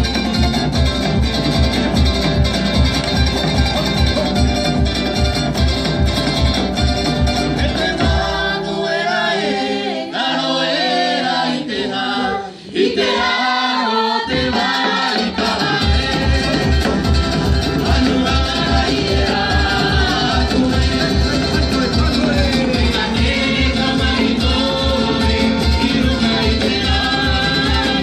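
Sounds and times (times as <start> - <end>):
fast drum beat: 0.0 - 8.7, 14.3 - 28.0
group singing: 7.0 - 28.0.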